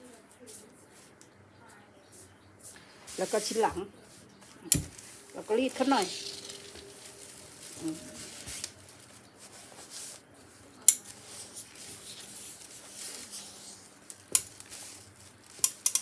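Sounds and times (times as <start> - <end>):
soft fabric rustle: 0.0 - 15.7
steam iron gliding over fabric: 4.9 - 10.3.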